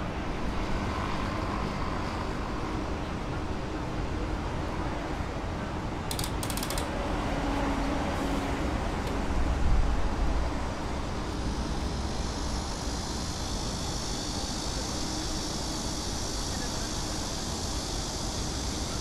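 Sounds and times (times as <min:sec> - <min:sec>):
traffic noise: 0:00.0 - 0:19.0
quick ticking rattle: 0:06.1 - 0:06.9
high hiss: 0:10.2 - 0:19.0.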